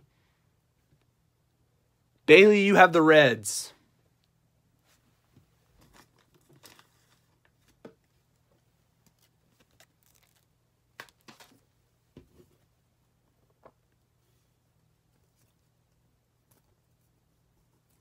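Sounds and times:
plastic card sleeves crinkling: 0:09.0 - 0:11.6.

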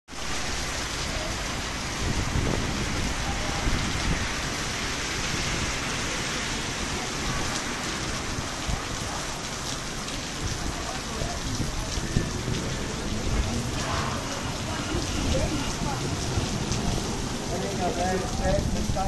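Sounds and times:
heavy rain on pavement: 0:00.1 - 0:19.0
low rumbles: 0:10.3 - 0:19.0.

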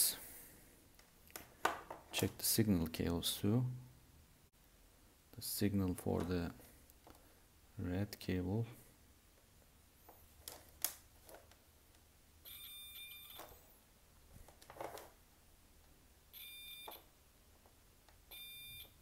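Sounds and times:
multimeter continuity beeps: 0:12.4 - 0:13.6, 0:16.3 - 0:17.1, 0:18.3 - 0:19.0.

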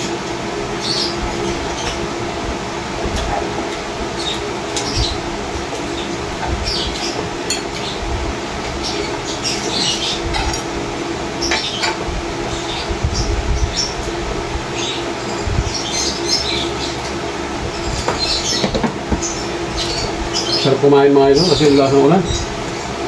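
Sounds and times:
plates and spoons clinking: 0:07.4 - 0:07.8.

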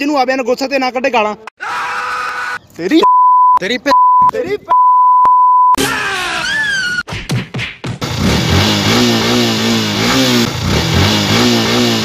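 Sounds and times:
motorcycle engine revving: 0:08.0 - 0:12.0.

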